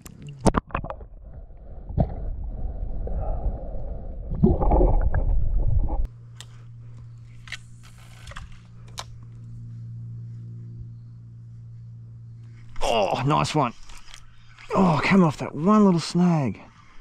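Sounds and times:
underwater rumble and sloshing: 0.0s - 6.1s
steady low hum: 0.0s - 17.0s.

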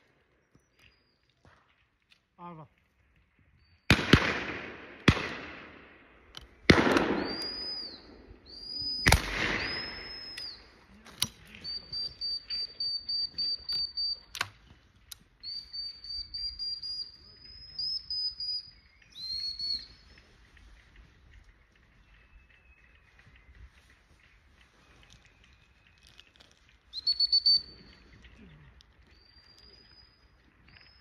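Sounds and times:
shotgun shots with echo: 3.9s - 6.0s, 6.6s - 8.2s, 8.9s - 10.4s
distant shots: 3.9s - 10.6s
high thin chirps: 11.4s - 14.4s, 26.8s - 28.0s.

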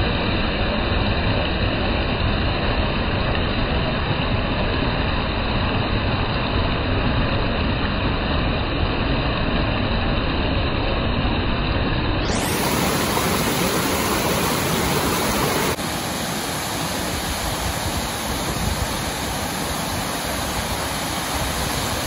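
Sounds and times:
water pouring over rocks: 12.2s - 22.0s.

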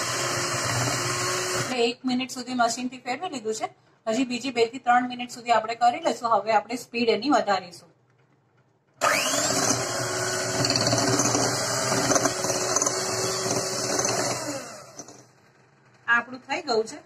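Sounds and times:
electric hand mixer whining: 0.0s - 1.7s, 9.0s - 15.2s.

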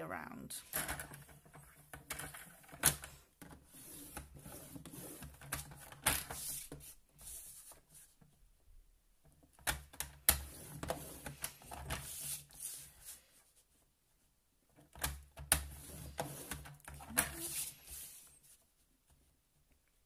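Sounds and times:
blade drawn along card: 17.1s - 18.4s.

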